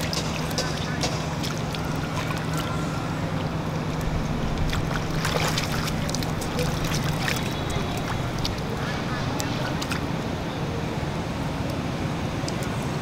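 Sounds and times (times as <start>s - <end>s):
monkeys splashing in puddle: 0.0s - 10.1s.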